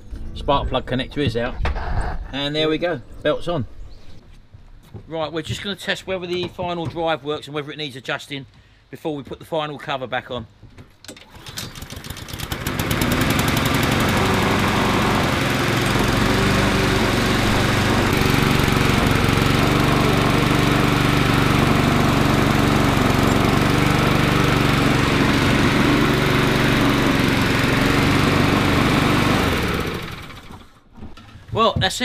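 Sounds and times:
lawnmower engine running: 11.2 - 30.8.

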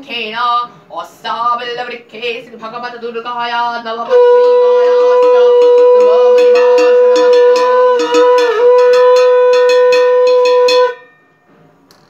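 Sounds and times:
conch shell blown: 4.1 - 11.3
hand bell ringing: 5.2 - 11.4.

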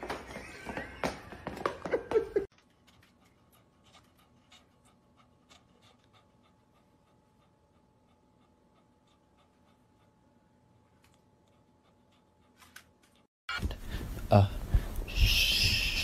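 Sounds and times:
dog panting: 2.6 - 13.3.

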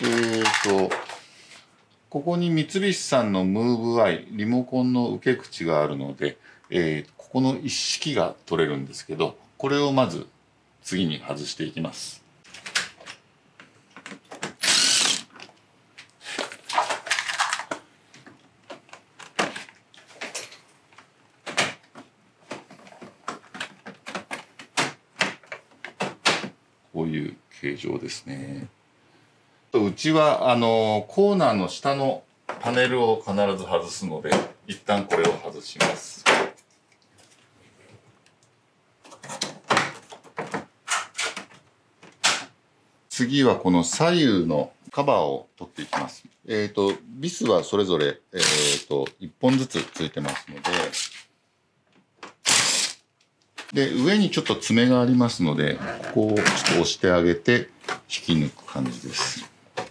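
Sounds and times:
plastic cover clicks and knocks: 21.0 - 26.6.

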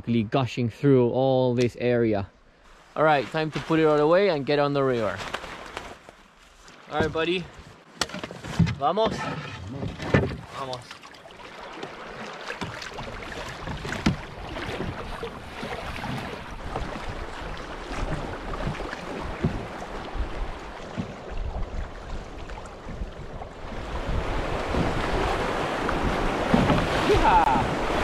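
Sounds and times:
river water rushing against canoe: 2.6 - 28.0
canoe splash: 2.7 - 28.0
wind buffeting microphone: 14.1 - 28.0.

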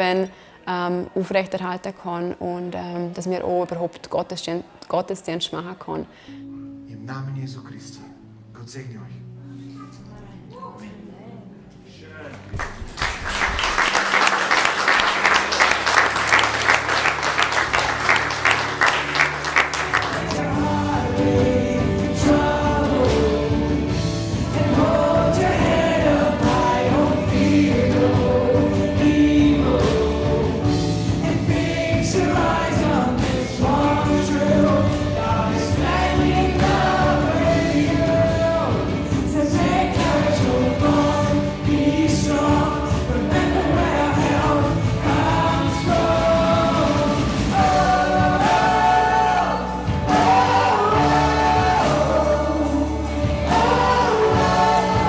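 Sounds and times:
congregation applauding: 12.2 - 20.8
congregation singing worship song: 12.3 - 55.0.

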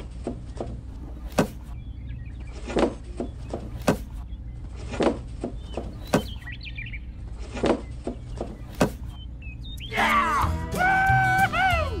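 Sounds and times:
faint bird chirps: 0.0 - 10.5
sharp knocks: 1.3 - 1.7, 2.8 - 4.2, 5.0 - 6.4.

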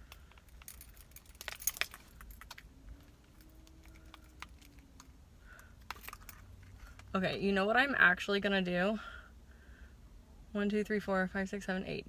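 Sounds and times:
keys jangling on a key ring: 0.0 - 5.1.

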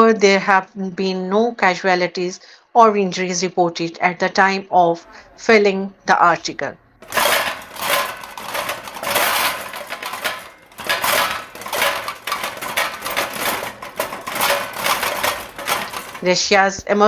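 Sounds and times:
household objects rattling: 7.0 - 16.4.

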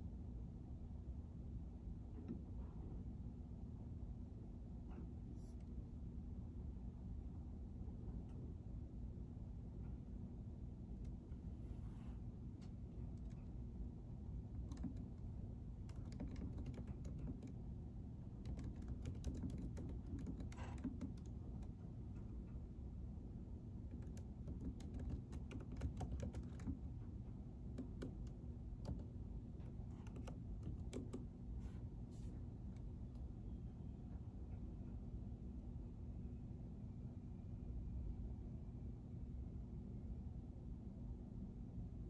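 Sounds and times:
steady low hum: 0.0 - 42.0
keyboard key clicks: 14.6 - 17.6, 18.4 - 21.7, 23.9 - 26.8, 27.7 - 31.3.

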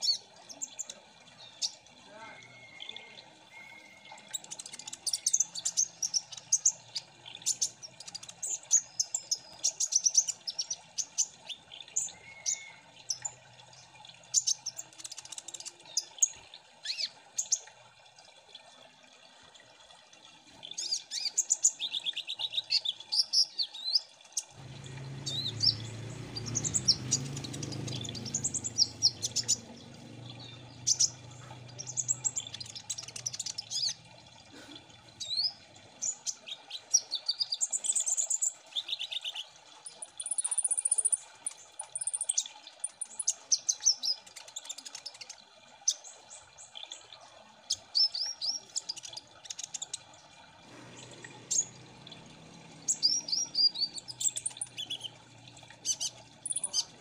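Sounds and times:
sunbird chirping and twittering: 0.0 - 17.1, 20.7 - 34.0, 35.2 - 45.4, 50.8 - 57.0
low hum: 24.6 - 32.4
buzzy bird trill: 24.6 - 34.0, 52.8 - 55.1.

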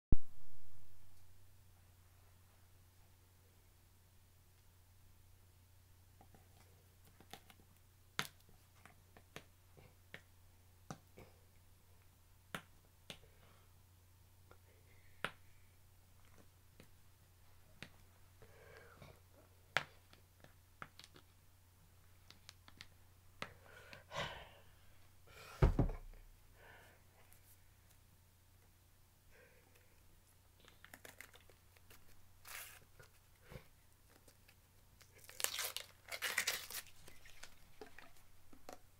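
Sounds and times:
low steady hum: 0.2 - 38.9
loud thump: 25.6 - 26.2.

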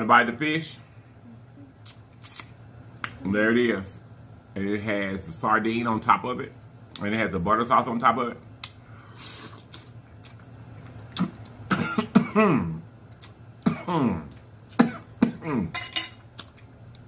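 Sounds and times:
man chewing with lip smacks: 1.8 - 3.2, 8.6 - 11.7, 13.0 - 13.6, 14.2 - 14.8, 16.3 - 17.0.

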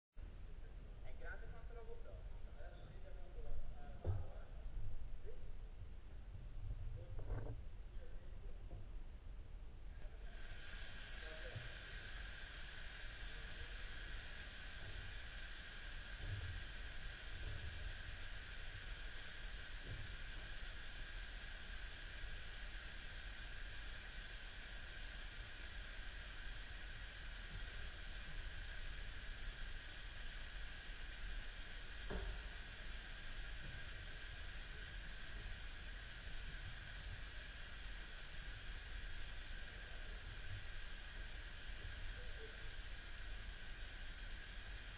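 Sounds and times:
underwater leak hissing: 10.0 - 44.9.

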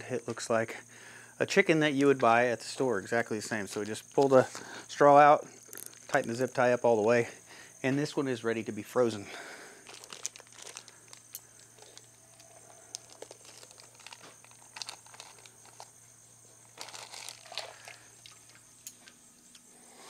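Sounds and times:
plastic bag crinkling: 9.8 - 15.9, 16.6 - 18.6.

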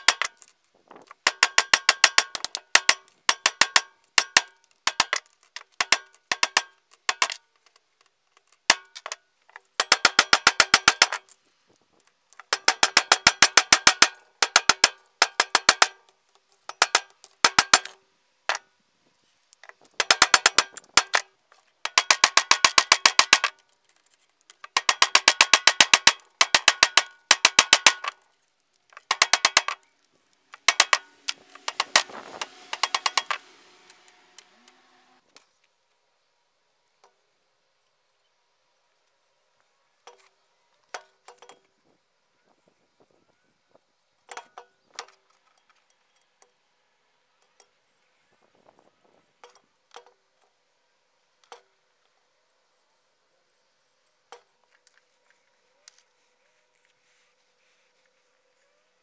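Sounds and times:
hammer striking steel: 1.2 - 5.2, 12.5 - 16.0, 24.8 - 28.2, 29.0 - 29.8, 30.5 - 35.2
rough metal scraping: 29.0 - 35.3.

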